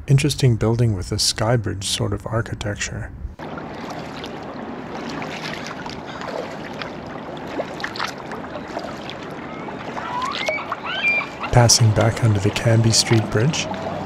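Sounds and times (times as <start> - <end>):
paddle splashes and drips: 3.4 - 14.0
water washing: 3.4 - 14.0.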